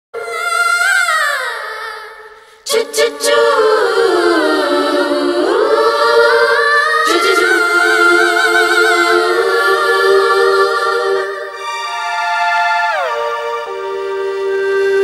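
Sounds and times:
wordless choir holding chord: 0:02.7 - 0:15.0.

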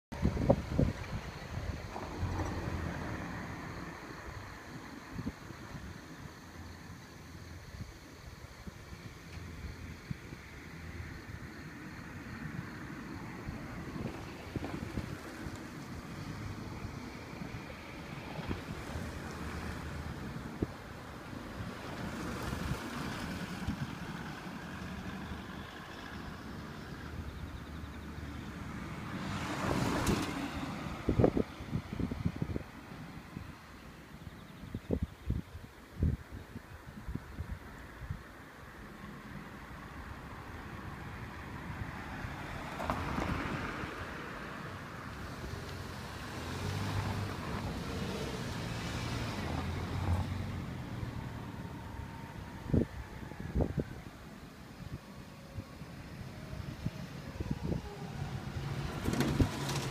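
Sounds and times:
wind on microphone: 0:00.1 - 0:03.2, 0:13.4 - 0:21.0, 0:29.2 - 0:33.7, 0:34.3 - 0:38.3, 0:51.6 - 0:59.9
traffic noise: 0:00.1 - 0:59.9
vehicle passing: 0:41.3 - 0:53.9.

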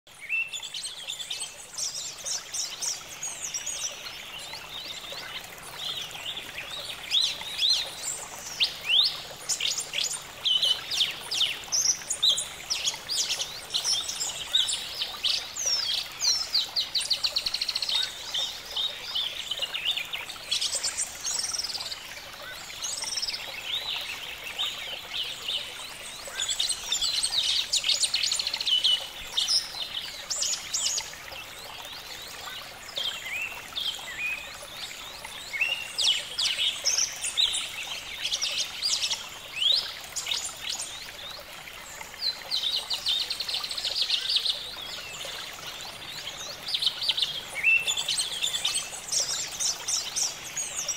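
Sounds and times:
birds chirping and trilling: 0:31.8 - 0:50.9.

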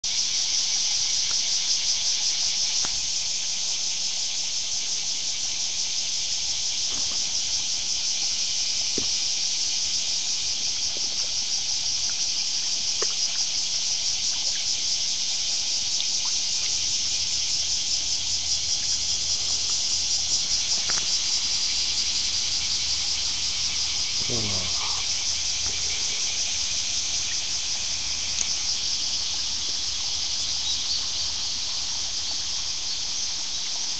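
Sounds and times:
insect chorus drone: 0:00.0 - 0:33.9
faint ticks: 0:12.9 - 0:13.4.

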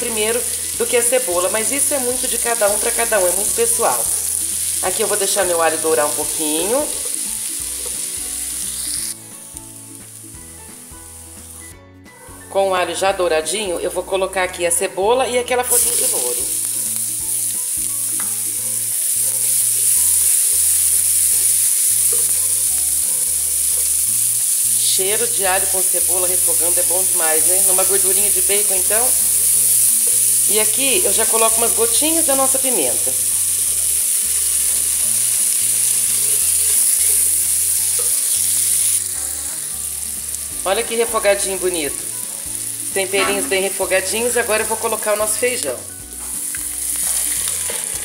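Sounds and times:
onion and garlic sizzling in a pan: 0:00.0 - 0:11.8, 0:12.4 - 0:48.0.

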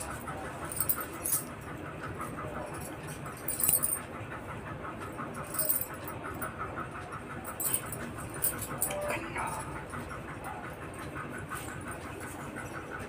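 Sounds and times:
bangles jingling: 0:00.0 - 0:04.2, 0:05.3 - 0:06.6, 0:07.4 - 0:10.0.

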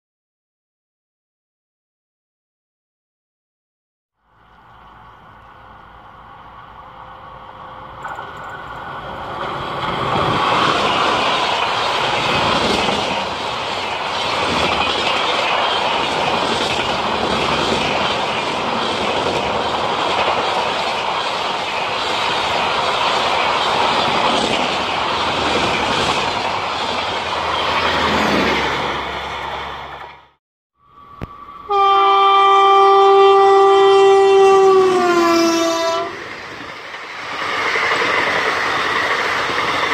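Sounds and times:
train air horn blast: 0:31.6 - 0:36.2.

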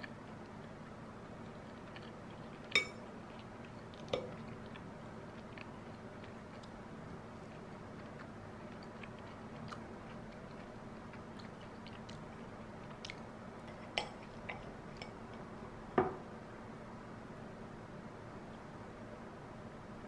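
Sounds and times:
metal clinking on plate: 0:02.8 - 0:03.0.

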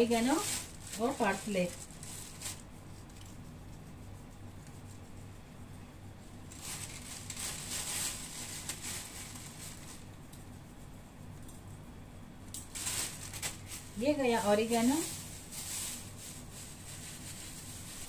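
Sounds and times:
plastic bag rustling: 0:00.0 - 0:02.7, 0:06.5 - 0:10.1, 0:12.6 - 0:18.0
faint low hum: 0:00.0 - 0:18.0.

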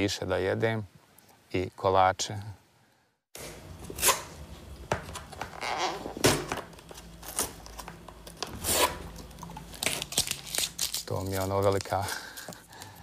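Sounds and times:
paper wrapping rustling and ripping: 0:07.1 - 0:13.0.

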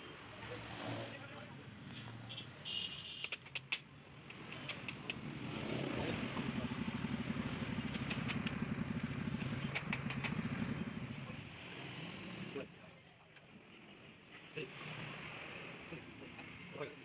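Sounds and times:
sharp clicks: 0:03.2 - 0:05.3, 0:07.8 - 0:08.6, 0:09.3 - 0:10.5
motorcycle engine running: 0:04.4 - 0:11.5.

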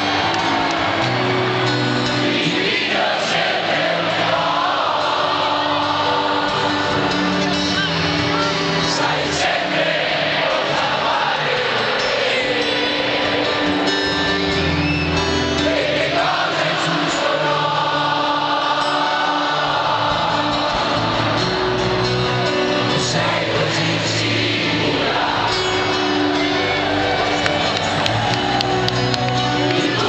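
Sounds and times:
distant live rock band: 0:00.0 - 0:30.0
lead singer singing: 0:14.8 - 0:30.0.

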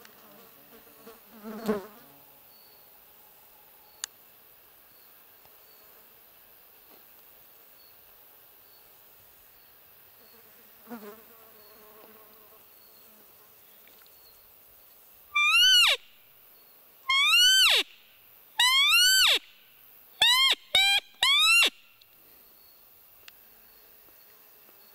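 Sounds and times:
faint insect buzz: 0:00.0 - 0:24.9
deer lure call bleat: 0:15.4 - 0:16.0, 0:17.1 - 0:17.9, 0:18.6 - 0:19.5, 0:20.2 - 0:21.8.

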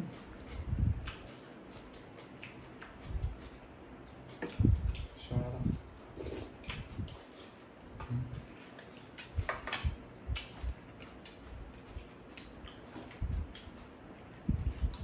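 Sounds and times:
people chewing and eating: 0:00.0 - 0:15.0
chopsticks clicking against bowls: 0:01.0 - 0:05.9, 0:06.5 - 0:08.1, 0:08.7 - 0:13.9.

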